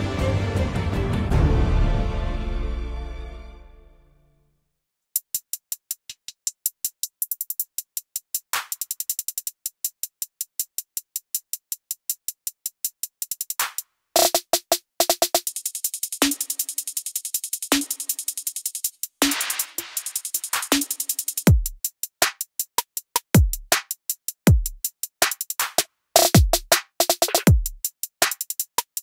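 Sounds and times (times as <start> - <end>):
fast ticking electronic beat: 14.2 - 29.0.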